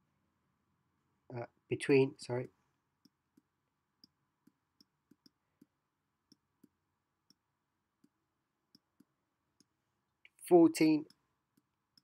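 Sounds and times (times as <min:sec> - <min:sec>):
stylus tapping pen tablet: 0:03.0 - 0:09.8, 0:11.0 - 0:12.0.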